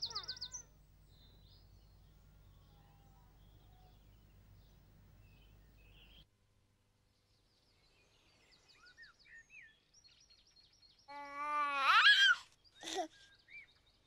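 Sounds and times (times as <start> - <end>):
high warbling bird trill: 0.0 - 6.2
faint bird chirps: 0.0 - 6.3
faint outdoor background: 0.0 - 14.0.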